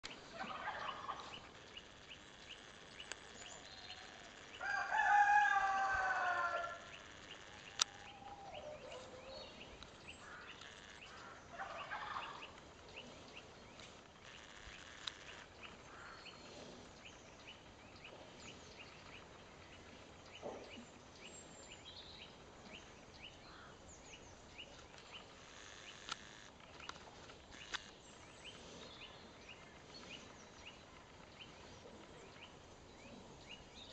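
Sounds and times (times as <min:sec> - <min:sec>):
farmyard background: 0:00.0 - 0:33.9
faint regular ticking: 0:01.3 - 0:04.6, 0:06.8 - 0:08.1, 0:09.8 - 0:11.4, 0:13.8 - 0:16.4, 0:24.9 - 0:28.6
rooster crowing: 0:03.9 - 0:07.1.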